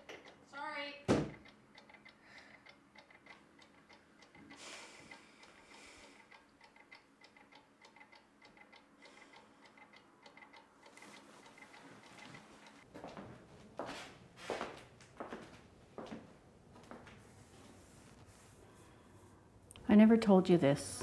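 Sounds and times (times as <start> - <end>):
clock ticking: 0.0 - 12.9.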